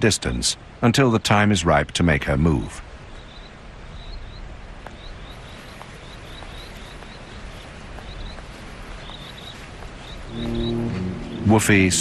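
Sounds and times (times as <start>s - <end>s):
small bird chirping: 3.1s - 12.0s.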